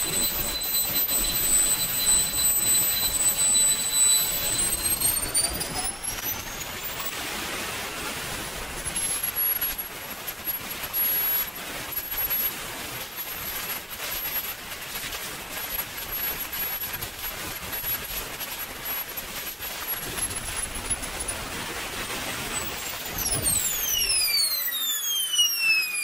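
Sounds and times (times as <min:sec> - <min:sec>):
high turbine whine: 0:00.0 - 0:07.1, 0:19.4 - 0:26.0
jet turbine roar: 0:21.7 - 0:26.0.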